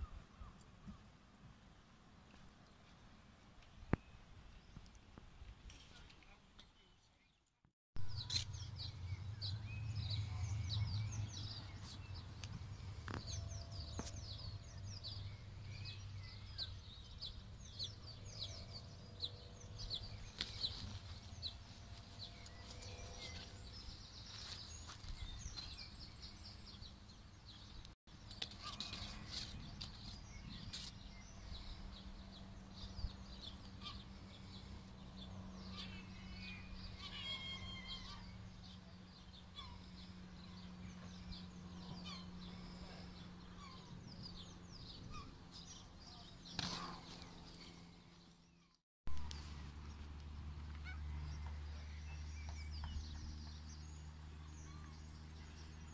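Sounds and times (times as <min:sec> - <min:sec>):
small birds chirping: 0:05.7 - 0:55.9
low rumble: 0:08.0 - 0:25.5.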